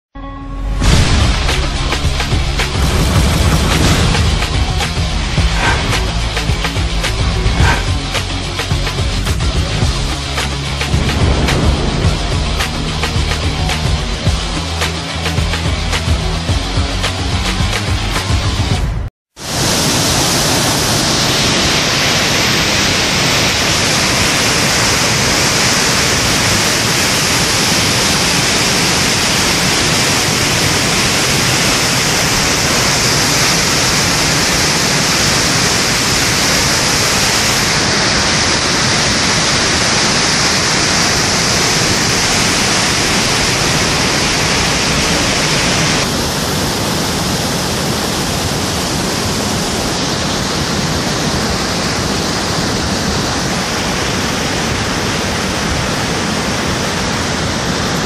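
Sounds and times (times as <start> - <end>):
floodwater rushing: 0.8 - 15.4, 19.4 - 58.0.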